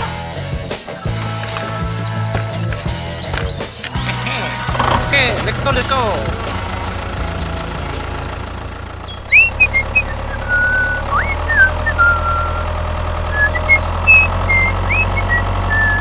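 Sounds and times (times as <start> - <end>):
tractor engine running: 0.0 - 16.0
high whistled chirps: 8.2 - 16.0.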